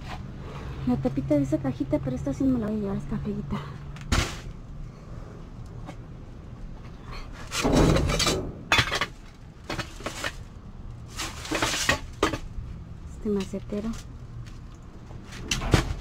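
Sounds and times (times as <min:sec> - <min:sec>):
objects clinking and knocking: 0:07.5 - 0:10.5
plastic trash bags rustling: 0:09.6 - 0:12.3.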